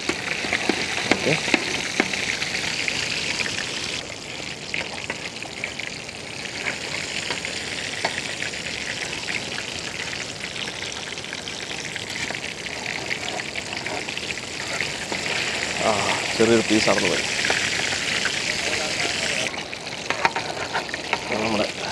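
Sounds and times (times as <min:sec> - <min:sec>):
crackles and pops: 0:00.0 - 0:05.8
fish deep-frying in oil: 0:00.0 - 0:21.9.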